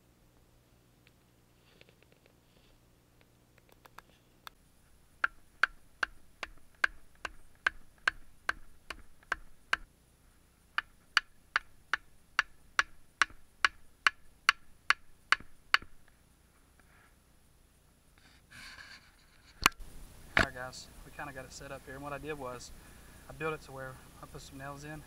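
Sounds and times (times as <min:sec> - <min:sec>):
hatchet pounding wooden stake: 0:05.2 - 0:09.9, 0:10.8 - 0:16.0.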